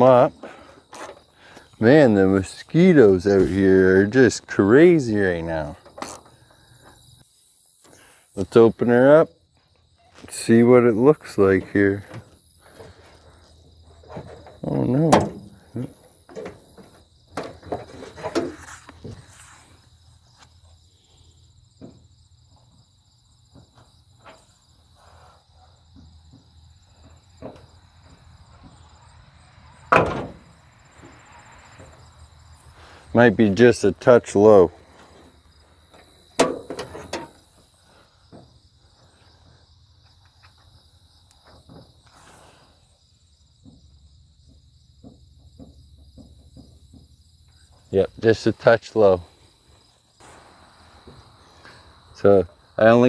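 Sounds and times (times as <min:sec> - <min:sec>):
insects chirping: 0:00.0 - 0:53.0.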